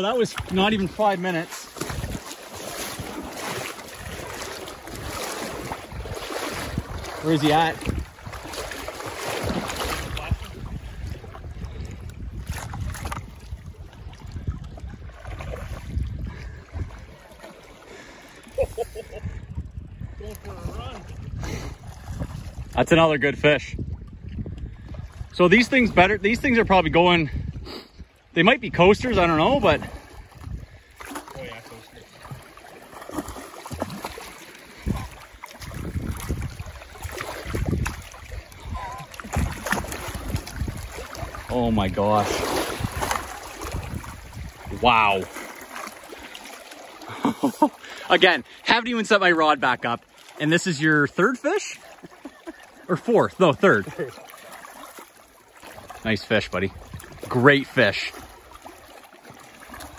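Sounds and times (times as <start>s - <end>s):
small waves: 0.0s - 59.9s
water splashes: 0.0s - 59.9s
wind buffeting microphone: 1.8s - 17.3s, 18.6s - 32.4s, 33.2s - 45.4s, 56.2s - 57.4s.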